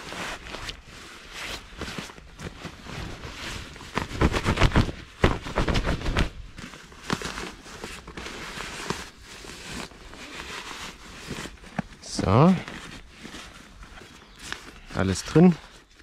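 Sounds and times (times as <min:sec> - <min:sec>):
fabric rustling and swishing: 0:00.0 - 0:14.8.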